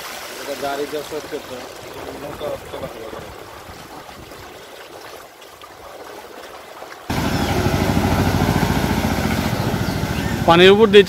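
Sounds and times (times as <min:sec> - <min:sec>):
floodwater sloshing: 0:00.0 - 0:10.6
vehicle engine chugging: 0:07.1 - 0:11.0.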